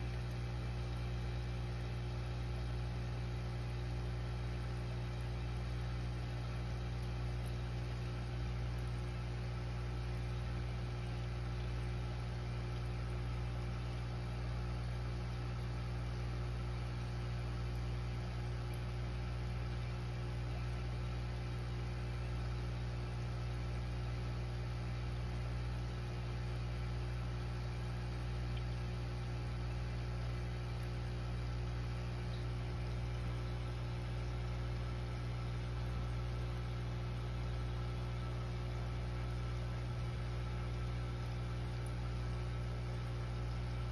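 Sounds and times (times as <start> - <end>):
aquarium pump humming: 0.0 - 43.9.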